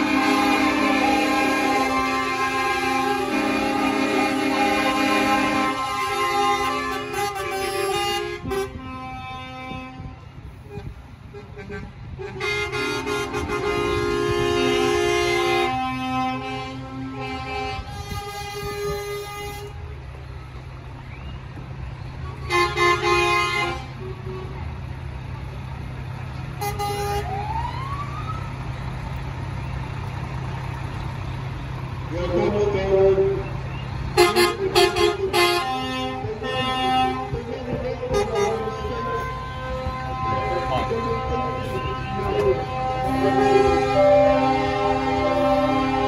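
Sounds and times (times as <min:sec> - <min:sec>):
truck air horns: 0:00.0 - 0:20.1, 0:22.3 - 0:24.6, 0:26.5 - 0:28.0, 0:32.1 - 0:46.0
rising siren-like tone: 0:27.2 - 0:28.6.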